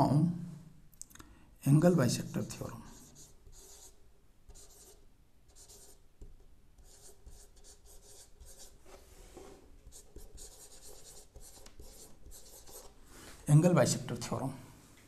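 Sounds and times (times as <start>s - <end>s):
marker pen writing on whiteboard: 2.0s - 13.0s.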